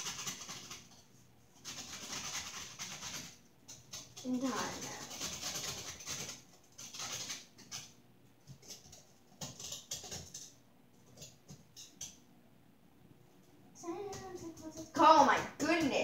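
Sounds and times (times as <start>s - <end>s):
scratchy rustling: 0.0s - 10.4s.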